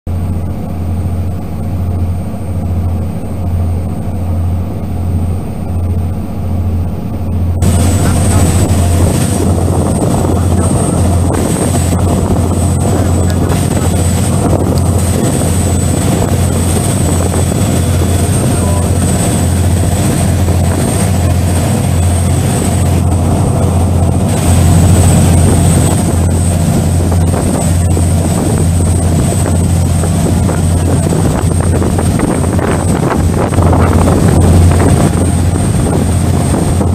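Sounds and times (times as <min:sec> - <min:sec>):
ferry engines droning: 0:00.1 - 0:36.9
rush of wind and water: 0:00.1 - 0:36.9.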